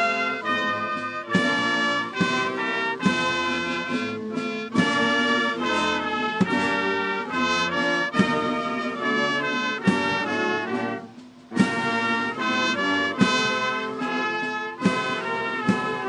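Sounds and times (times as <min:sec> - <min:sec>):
brass band playing: 0:00.0 - 0:16.0.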